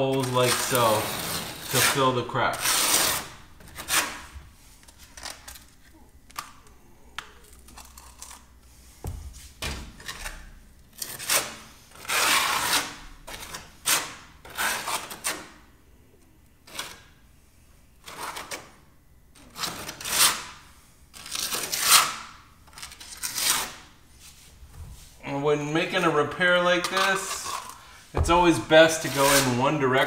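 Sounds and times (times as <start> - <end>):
metal knife scraping cement: 0.1 - 4.2, 10.0 - 15.4, 22.7 - 23.9, 26.8 - 29.8.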